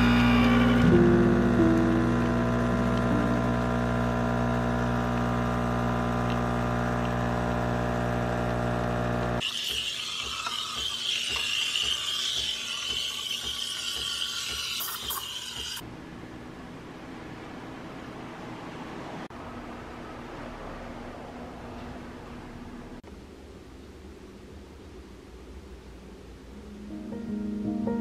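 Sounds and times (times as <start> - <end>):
espresso machine pump humming: 0.0 - 15.8
steam wand hissing: 9.4 - 15.8.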